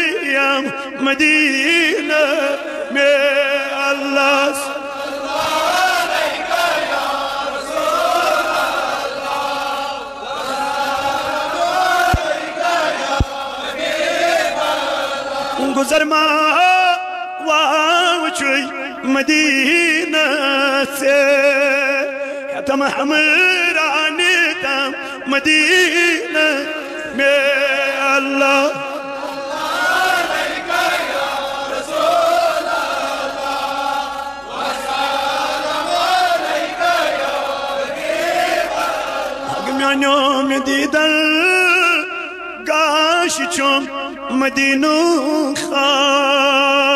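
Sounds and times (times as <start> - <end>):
men chanting together: 0.2 - 16.6, 24.1 - 41.1.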